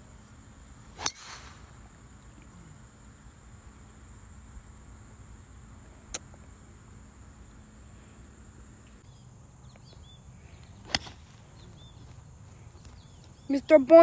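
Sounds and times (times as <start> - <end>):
insects droning: 0.0 - 14.0
bird chirps: 9.0 - 13.9.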